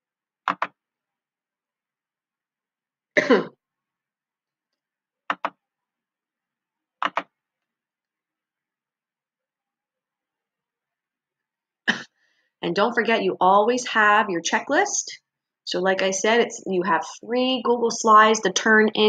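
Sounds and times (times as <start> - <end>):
short cough: 3.2 - 3.6.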